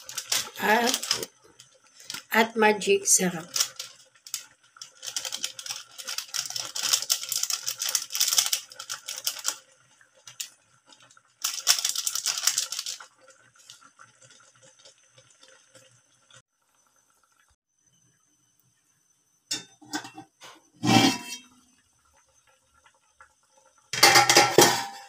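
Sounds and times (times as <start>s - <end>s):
plastic sachet crinkling: 0.0s - 1.3s, 2.0s - 2.4s, 3.2s - 9.6s, 10.2s - 13.1s.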